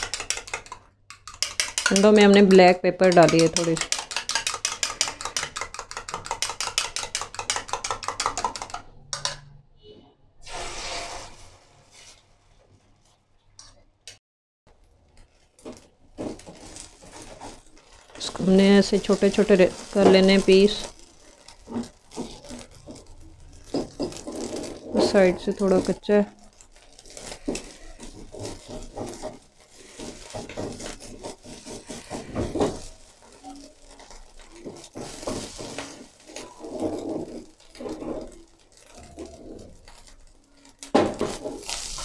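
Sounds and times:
spatula scraping a pan: 10.4 - 12.2, 26.7 - 40.3.

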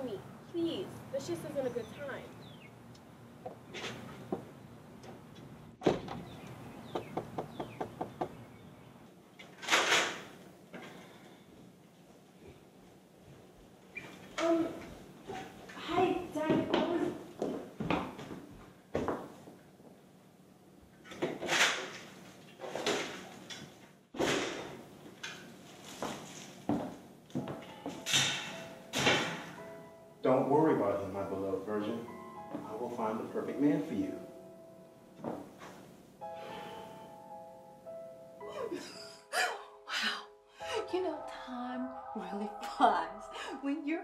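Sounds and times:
door shutting with thud: 5.8 - 6.3.

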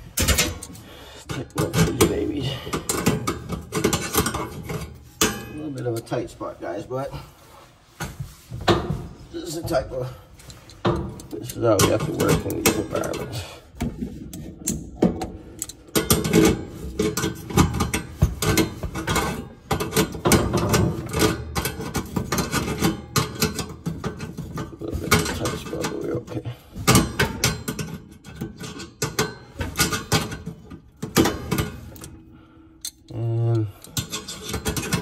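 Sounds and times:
pliers clicking against metal bolts: 14.3 - 18.7, 31.1 - 32.2, 32.8 - 35.0.

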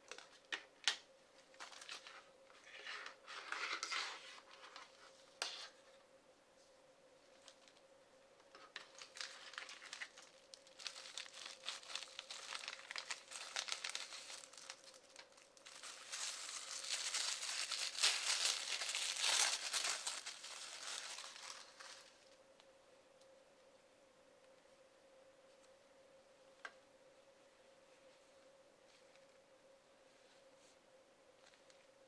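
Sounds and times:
plastic wrapping crinkling: 8.5 - 22.4.

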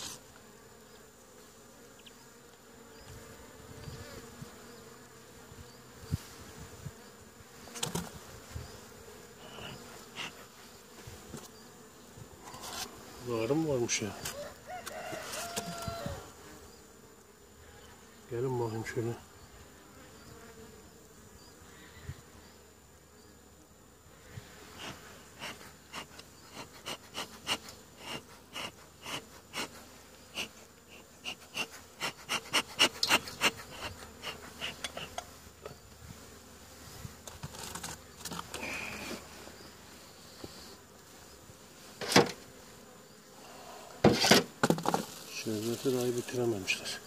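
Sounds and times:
bees buzzing: 0.0 - 47.0
bellows puffing: 24.8 - 35.2
knock on wooden hive: 44.0 - 45.1.

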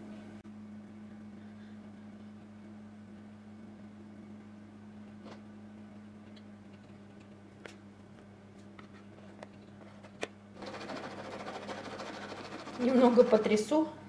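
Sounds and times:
low steady hum: 0.0 - 14.0
whisk clicking on plastic bowl: 10.7 - 13.6.

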